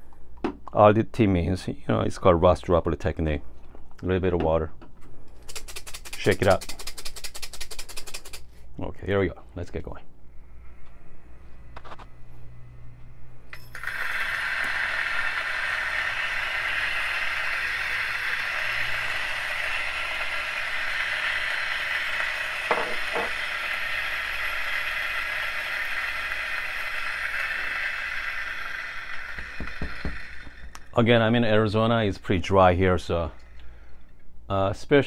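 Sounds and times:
electric coffee grinder whirring: 13.5s - 30.9s.

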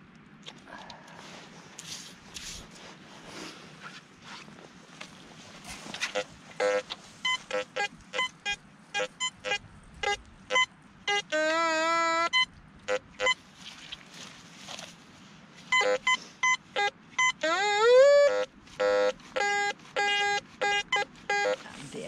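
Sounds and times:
metal detector low steady tone: 6.0s - 11.2s
metal detector quick beeps: 6.0s - 11.2s, 15.7s - 17.4s.

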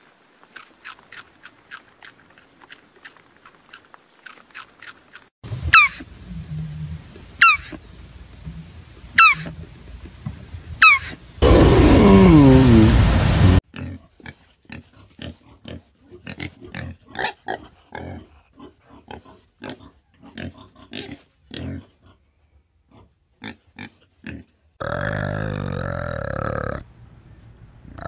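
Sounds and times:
pig grunting: 11.4s - 22.2s, 22.9s - 26.9s.

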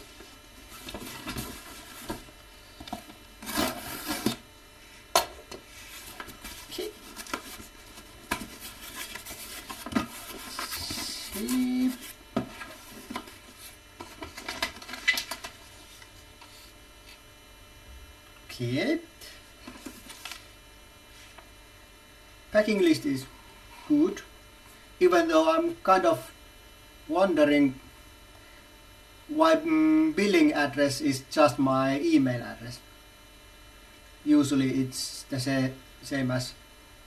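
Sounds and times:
cardboard box scraping and rustling: 3.4s - 4.4s.

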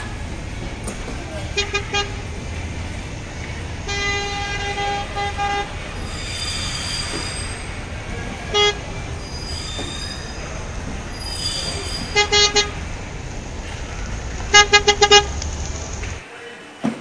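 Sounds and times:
steady low hum: 0.0s - 6.7s, 7.4s - 16.2s
toy car horn beeping: 3.8s - 16.2s.

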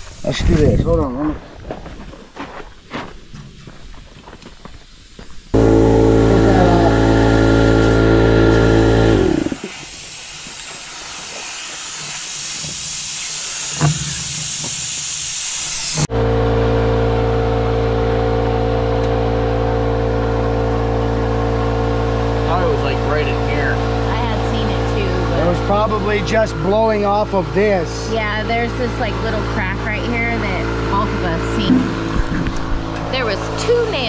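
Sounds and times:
compressed air hissing: 4.9s - 16.1s
air compressor motor humming: 5.6s - 34.0s.

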